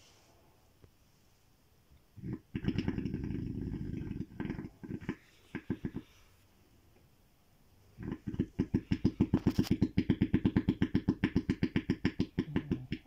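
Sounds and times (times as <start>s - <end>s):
animal snoring: 2.2s - 6.2s, 8.0s - 13.0s.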